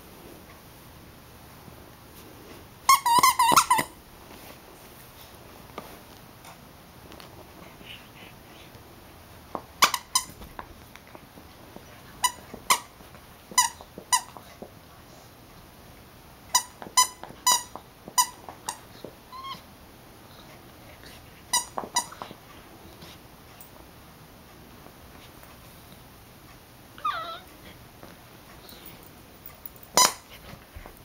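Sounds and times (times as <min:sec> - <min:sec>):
dog toy squeaker squeaking: 0:02.9 - 0:03.9.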